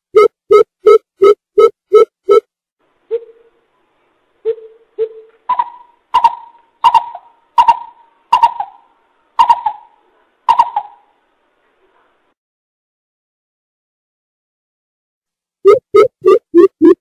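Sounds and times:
bird deep hooting call: 4.5 - 11.1.

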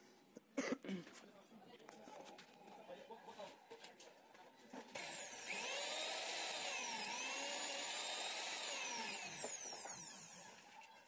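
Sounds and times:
mixer grinder motor whine: 5.0 - 11.0.

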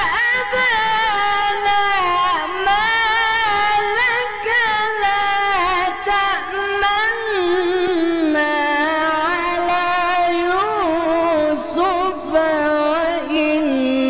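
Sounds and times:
person chanting melodically: 0.0 - 14.0.

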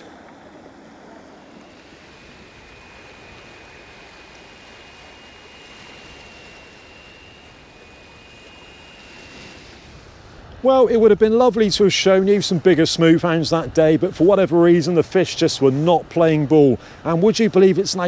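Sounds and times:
wind: 0.0 - 18.0.

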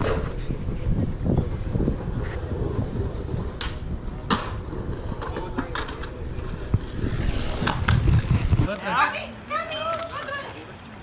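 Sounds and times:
wind buffeting microphone: 0.0 - 8.7.

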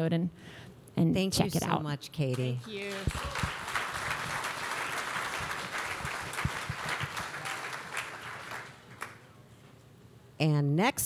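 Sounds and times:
audience applauding: 2.3 - 9.3.

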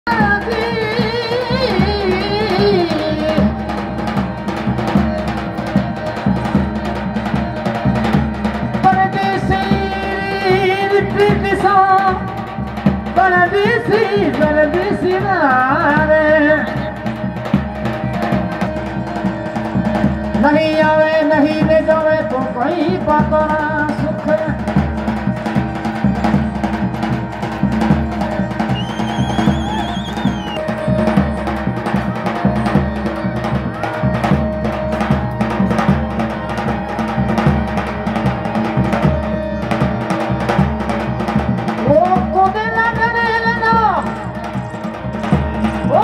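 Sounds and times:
person singing: 0.1 - 3.8, 8.8 - 12.3
hand drum beat: 0.1 - 46.0.

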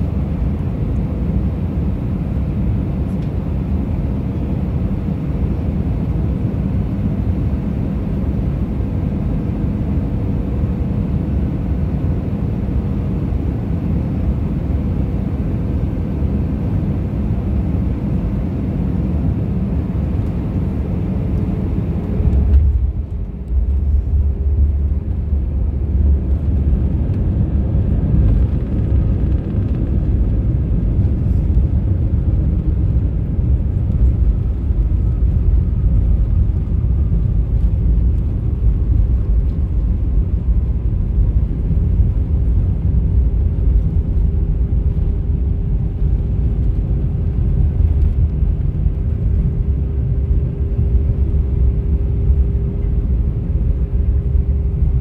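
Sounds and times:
jet engines rumbling: 0.0 - 55.0
wheels rolling on taxiway: 20.0 - 55.0.

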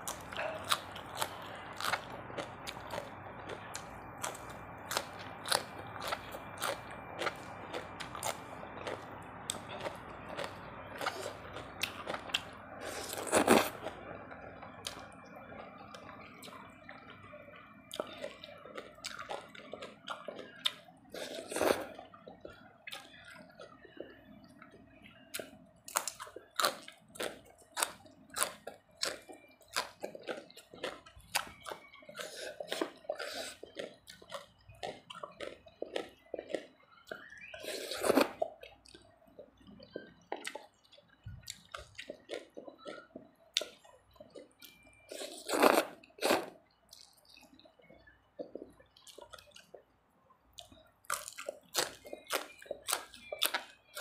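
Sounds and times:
wet chewing with mouth smacks: 14.8 - 49.9, 50.5 - 54.0.

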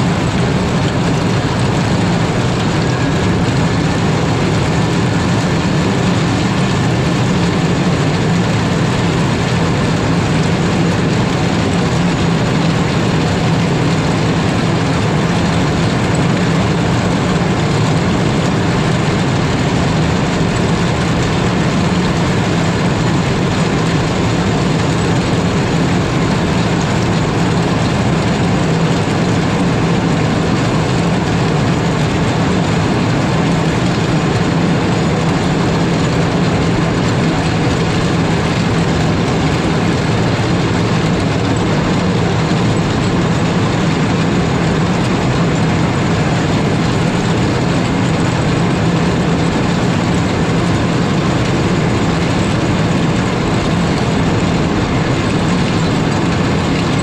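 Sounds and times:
diesel engine: 0.0 - 57.0.

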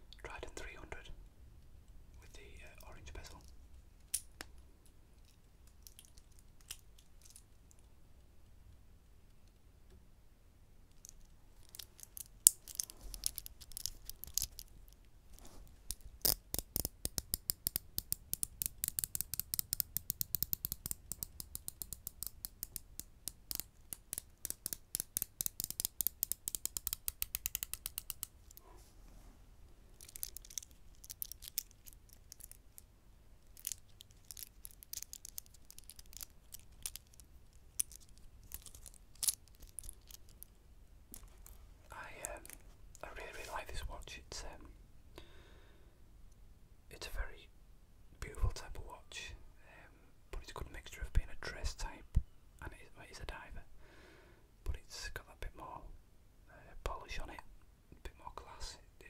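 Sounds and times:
small metallic watch clicks: 10.9 - 14.7, 15.9 - 28.6, 30.0 - 32.9, 33.6 - 40.5.

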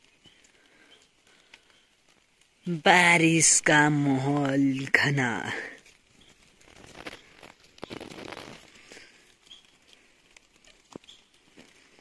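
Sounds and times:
footsteps on dry leaves: 5.0 - 12.0
bird chirps: 9.4 - 9.8, 11.0 - 11.4.

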